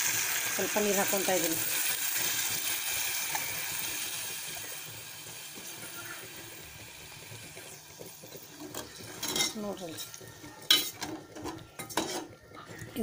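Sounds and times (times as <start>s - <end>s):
curry sizzling in pot: 0.0s - 13.0s
ladle clinking against pot: 10.7s - 12.4s.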